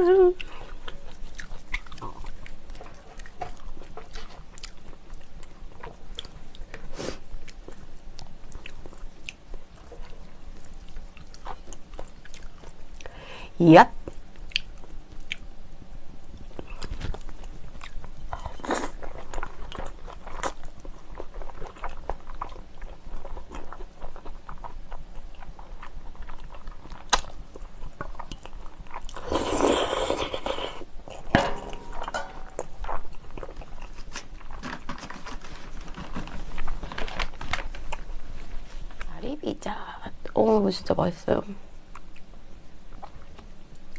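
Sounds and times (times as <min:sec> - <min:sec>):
chewing and wet smacking: 0:00.3 - 0:13.2, 0:14.0 - 0:37.0, 0:42.9 - 0:43.9
slurping noodles: 0:29.2 - 0:30.8.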